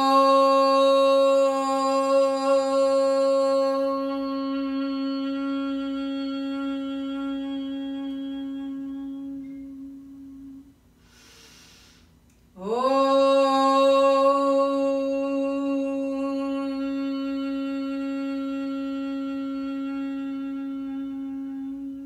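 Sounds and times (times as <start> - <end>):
woman chanting om: 0.0 - 22.0
breath in: 11.0 - 12.2.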